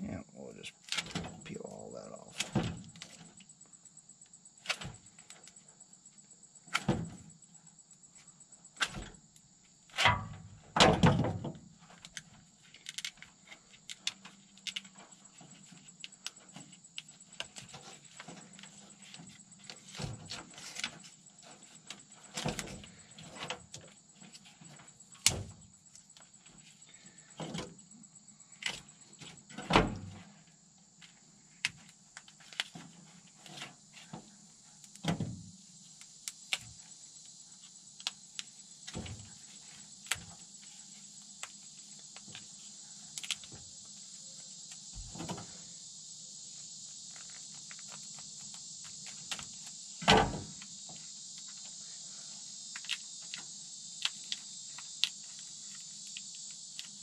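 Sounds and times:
insects chirring: 0.0 - 57.0
wiring harness clicks and rustles: 11.9 - 26.6.

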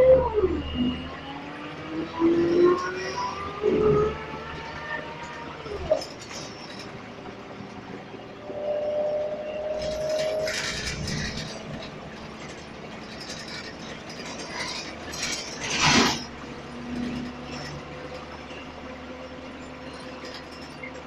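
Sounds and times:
bus engine humming: 0.0 - 21.0
sharp clatter: 5.0 - 21.0
seats and panels rattling: 9.8 - 17.8.

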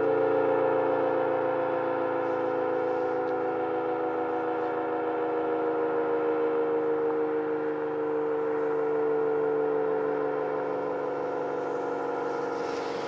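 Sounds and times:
warning siren steady tone: 0.0 - 13.0.

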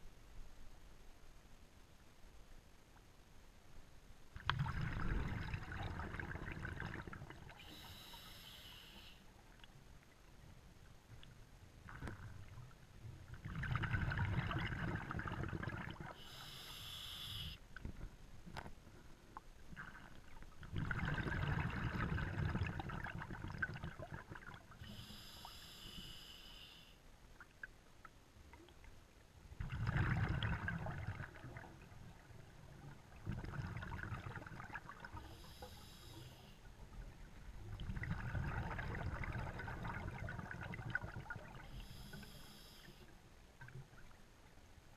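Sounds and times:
underwater bubbles of exhalation: 4.4 - 7.6, 13.3 - 16.2, 19.8 - 24.7, 29.6 - 32.4, 33.0 - 35.2, 37.7 - 41.6
regulator demand valve hiss: 7.6 - 9.2, 16.2 - 17.6, 24.9 - 27.0, 41.7 - 43.0.

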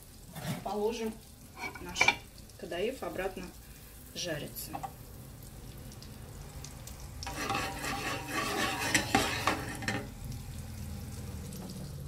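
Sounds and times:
butter sizzling: 0.0 - 12.0
knife scraping frying pan: 0.3 - 0.7, 1.6 - 2.2, 7.2 - 10.1.

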